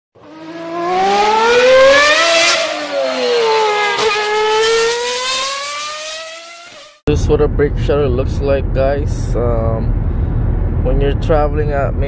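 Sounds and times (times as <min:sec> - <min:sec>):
vehicle engine revving: 0:00.2 - 0:07.0.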